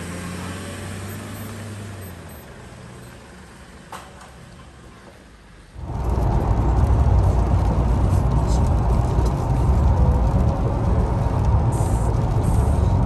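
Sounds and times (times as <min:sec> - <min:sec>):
vehicle engine humming: 0:00.0 - 0:13.0
loud low rumbling: 0:05.8 - 0:13.0.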